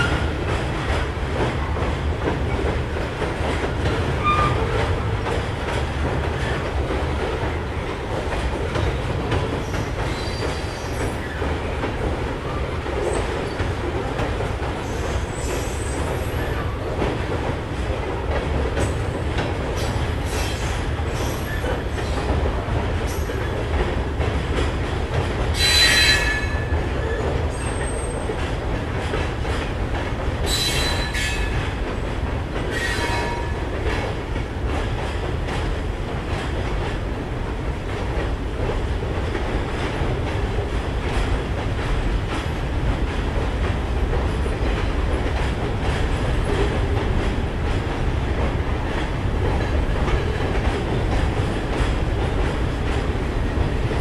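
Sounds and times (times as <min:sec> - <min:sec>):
freight train rumbling past: 0:00.0 - 0:54.0
train wheel clicks: 0:00.0 - 0:54.0
train wheels squealing: 0:04.2 - 0:04.8, 0:09.6 - 0:11.4, 0:14.8 - 0:16.8, 0:20.3 - 0:22.2, 0:25.6 - 0:28.3, 0:30.4 - 0:31.6, 0:32.7 - 0:33.5.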